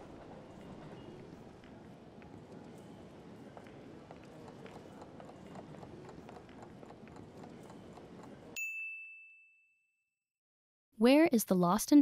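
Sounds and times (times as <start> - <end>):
footsteps and bustle: 0.0 - 8.6
bell ding: 8.6 - 10.0.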